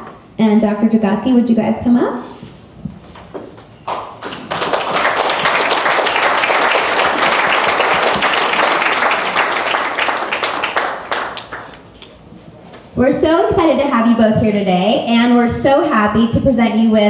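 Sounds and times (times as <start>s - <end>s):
audience applauding: 3.9s - 12.2s.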